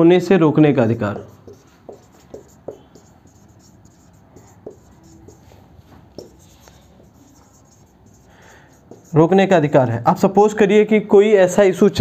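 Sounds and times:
marker scratching on whiteboard: 0.9 - 9.9
marker taps: 1.1 - 9.2.

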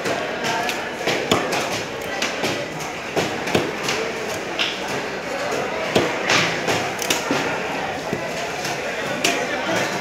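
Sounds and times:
murmur of market voices: 0.0 - 10.0
knife chopping fish: 0.2 - 7.4.

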